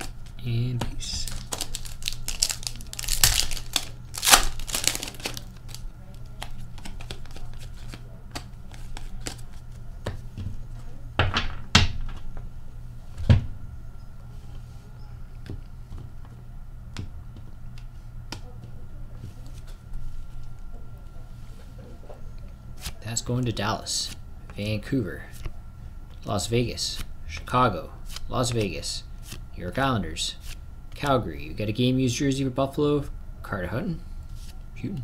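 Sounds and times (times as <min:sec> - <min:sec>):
cards rustling and crinkling: 0:00.0 - 0:09.8.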